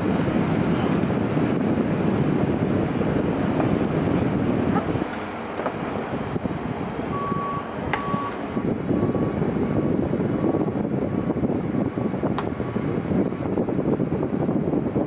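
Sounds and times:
wind rumble on microphone: 0:00.0 - 0:15.0
reversing alarm beeping: 0:06.1 - 0:13.0.

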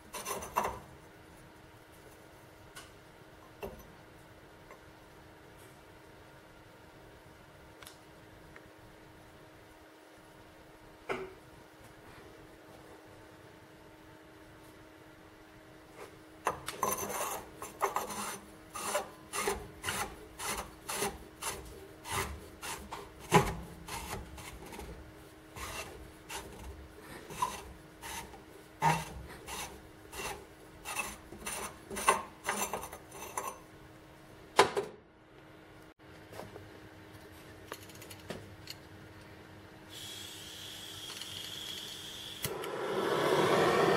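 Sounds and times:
hand tool rasping metal: 0:16.9 - 0:24.8, 0:25.6 - 0:33.6.

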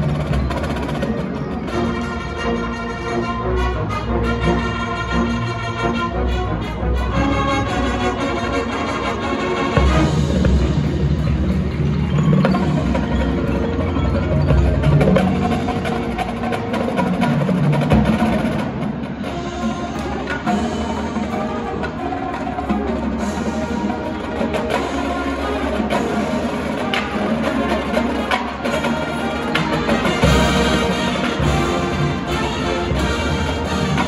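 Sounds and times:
marching band playing: 0:00.0 - 0:34.0
mallet percussion: 0:09.7 - 0:34.0.

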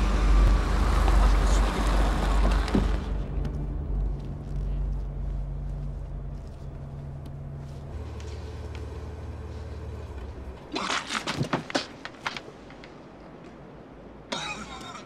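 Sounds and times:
car engine hum from inside: 0:00.0 - 0:10.8
car engine and tyres slowing: 0:00.0 - 0:14.1.

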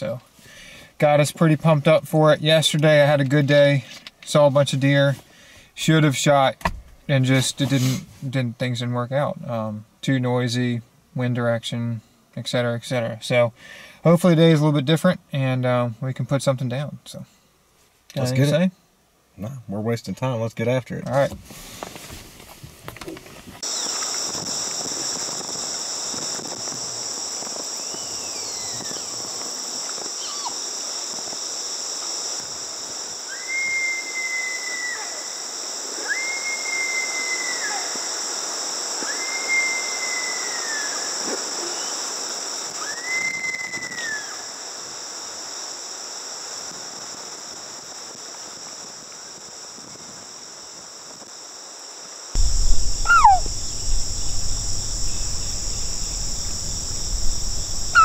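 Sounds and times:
insects chorus: 0:23.2 - 0:58.0
low rumble: 0:52.4 - 0:58.0
deer mewing calls: 0:53.0 - 0:53.5.

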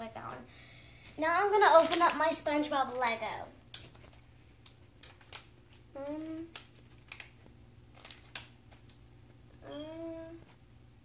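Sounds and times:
plastic crinkles and clicks: 0:01.6 - 0:02.2, 0:02.8 - 0:09.0
plastic packet tearing open: 0:01.7 - 0:02.2, 0:05.0 - 0:08.8
child humming: 0:05.9 - 0:06.5, 0:09.6 - 0:10.5.

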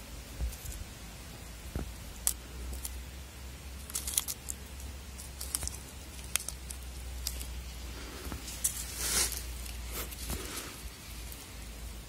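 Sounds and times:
steady low hum: 0:00.0 - 0:12.0
light ticks and crinkly rustles: 0:03.8 - 0:11.5.

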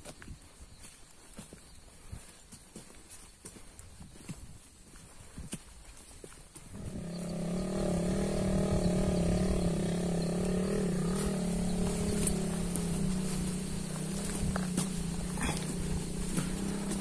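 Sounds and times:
motorcycle engine running: 0:06.7 - 0:17.0.

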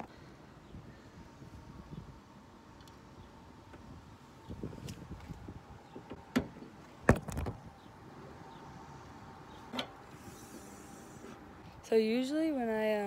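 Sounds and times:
car hood latch click and clunks: 0:06.0 - 0:07.6.

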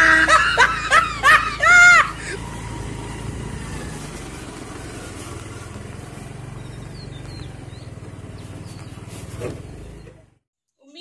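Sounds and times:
motorcycle engine running: 0:00.0 - 0:10.5
bird chirps: 0:06.5 - 0:10.3.

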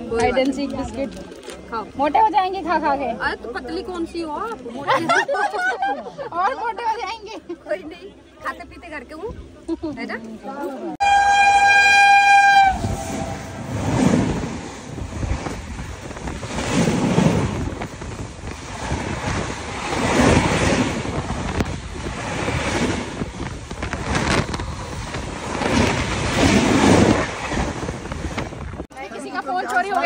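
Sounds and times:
moving train rumble: 0:11.0 - 0:28.9
wind buffeting microphone: 0:11.0 - 0:28.9.

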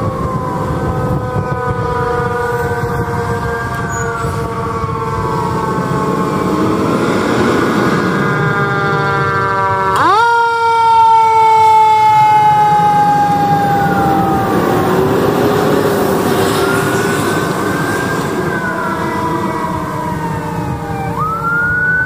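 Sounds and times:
fire engine siren wailing: 0:00.0 - 0:22.0
road noise: 0:00.0 - 0:22.0
truck engine: 0:00.0 - 0:22.0.

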